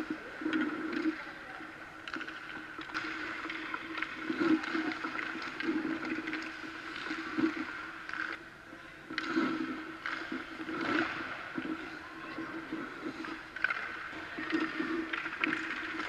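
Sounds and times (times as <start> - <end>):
steady hum: 0.0 - 16.0
skate blades scraping ice: 9.1 - 16.0.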